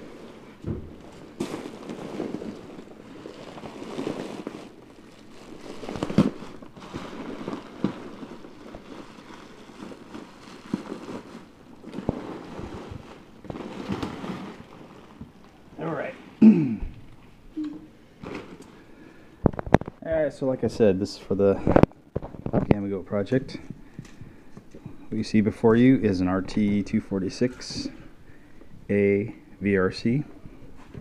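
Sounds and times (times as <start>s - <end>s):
packaging crinkling and rustling: 0.0s - 15.7s, 18.2s - 20.0s, 21.6s - 23.4s
sharp crackles and clicks: 1.1s - 15.6s.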